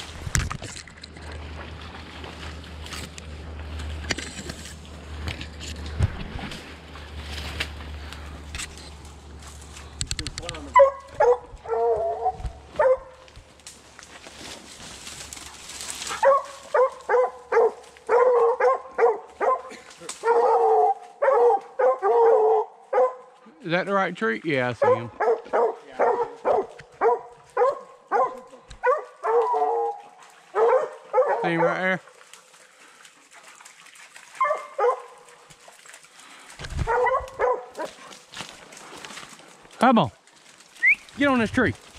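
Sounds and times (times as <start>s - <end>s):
rustling: 0.0s - 11.2s, 13.2s - 17.2s
hounds barking: 10.6s - 13.3s, 15.9s - 23.4s, 24.7s - 32.0s, 34.3s - 35.7s, 36.8s - 38.3s.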